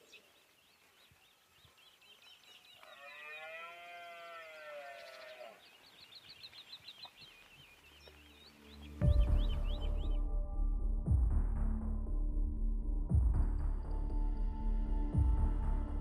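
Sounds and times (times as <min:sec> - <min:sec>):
small birds chirping: 0:00.0 - 0:10.2.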